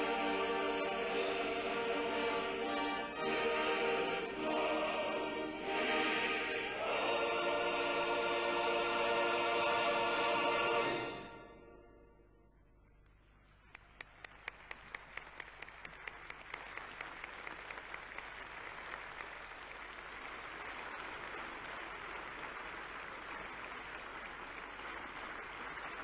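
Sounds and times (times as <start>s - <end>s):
crowd applause: 13.5s - 26.0s.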